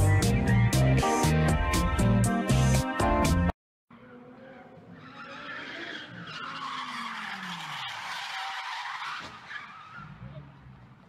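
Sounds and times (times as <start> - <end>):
tyres squealing: 4.5 - 10.7.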